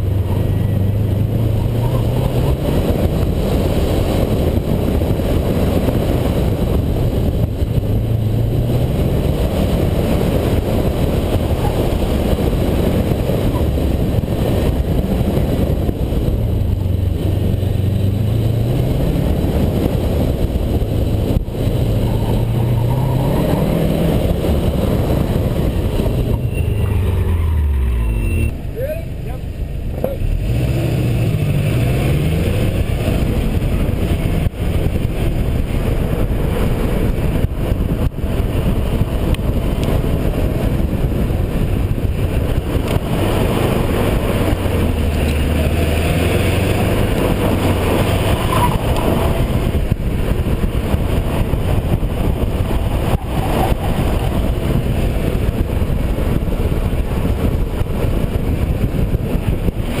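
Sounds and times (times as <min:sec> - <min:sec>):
car engine revving: 0:00.0 - 1:00.0
wind rumble on microphone: 0:00.0 - 1:00.0
tyre noise: 0:37.3 - 1:00.0.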